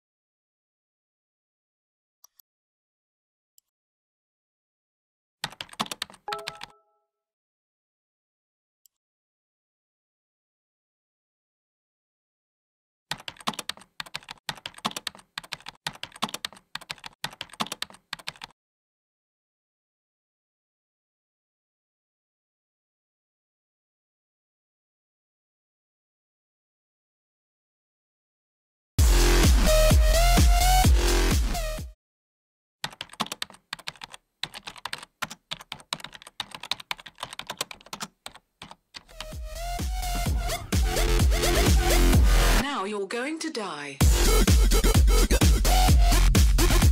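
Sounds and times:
fast typing on keyboard: 5.4 - 6.8, 13.1 - 18.5, 32.8 - 39.3
electronic dance music: 29.0 - 31.9, 39.2 - 42.8, 44.0 - 46.9.

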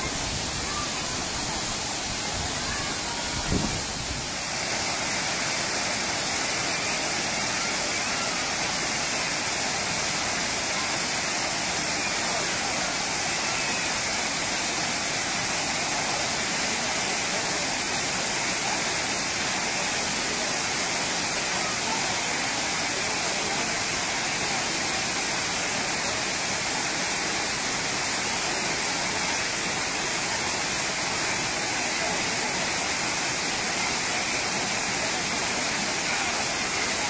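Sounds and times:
waterfall rushing onto rocks: 0.0 - 37.0.

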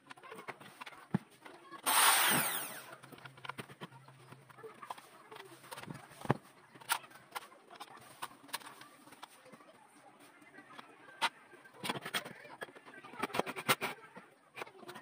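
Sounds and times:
power tool motor burst: 1.8 - 2.9.

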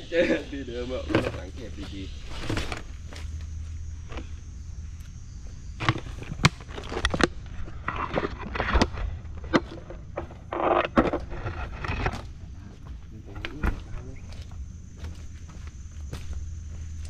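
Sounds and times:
rustling: 1.1 - 4.4.

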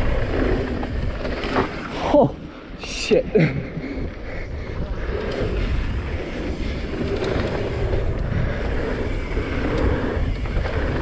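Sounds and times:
tyres rolling over dirt: 0.0 - 2.2, 4.8 - 11.0
wind buffeting microphone: 0.0 - 11.0.

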